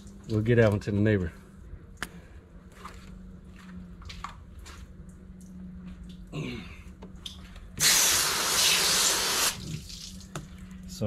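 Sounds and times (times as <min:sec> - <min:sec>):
hose nozzle spraying water: 0:07.8 - 0:10.2.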